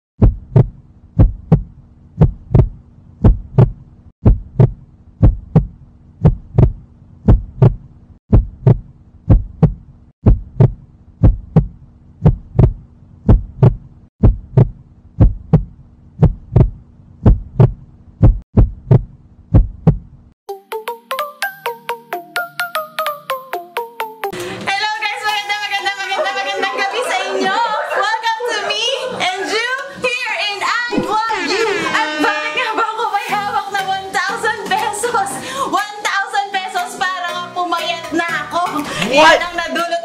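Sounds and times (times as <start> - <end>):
heartbeat thumps: 0.2 - 20.2
upbeat music: 20.5 - 27.8, 36.7 - 39.9.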